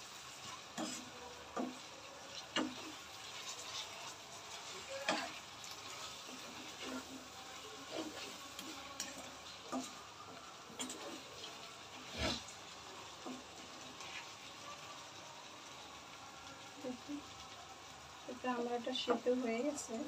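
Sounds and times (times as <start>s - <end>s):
wooden spatula scraping a wok: 0.0s - 14.9s.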